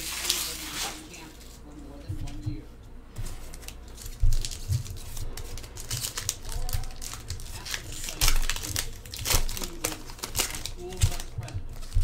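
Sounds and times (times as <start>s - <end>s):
card wrappers crinkling and tearing: 0.0s - 1.2s, 3.4s - 12.0s
cards handled: 3.2s - 12.0s.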